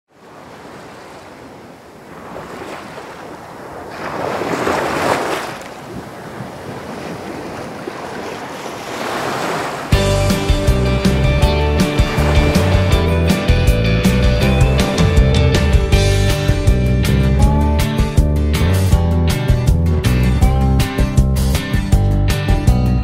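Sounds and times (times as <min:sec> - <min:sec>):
music with strong beat: 0:10.0 - 0:23.0.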